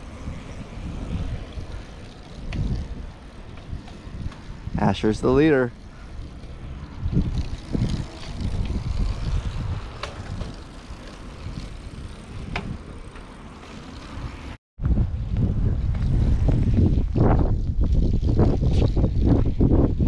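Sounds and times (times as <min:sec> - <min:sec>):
wind buffeting microphone: 0:00.0 - 0:13.3, 0:14.2 - 0:20.0
bicycle tyres rolling on concrete: 0:00.0 - 0:20.0.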